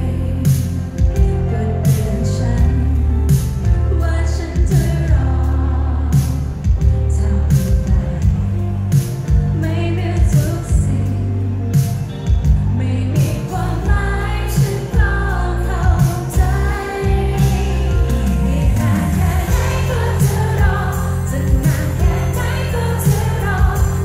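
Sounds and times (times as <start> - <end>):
live pop band playing: 0.0 - 24.0
person singing: 12.8 - 24.0.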